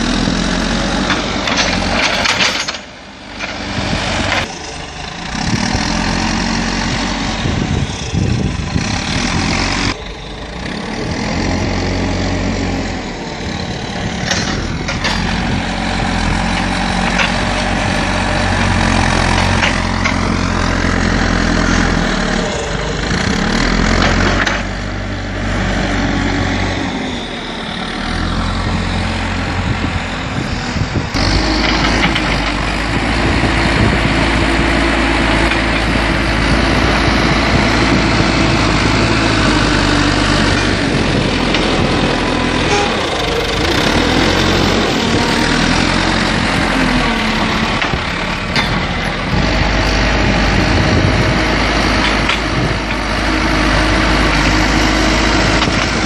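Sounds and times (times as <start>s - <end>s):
diesel engine under load: 0.0s - 56.0s.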